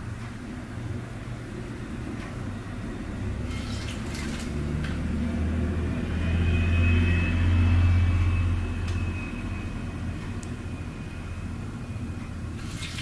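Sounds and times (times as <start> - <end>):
bird splashing in water: 12.6 - 13.0.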